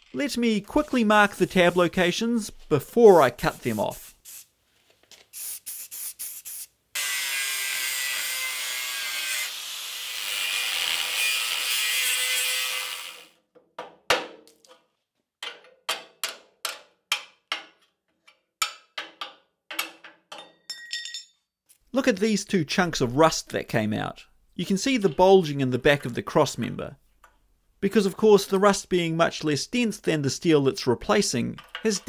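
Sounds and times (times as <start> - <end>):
power grinder cutting steel: 7.0 - 13.4.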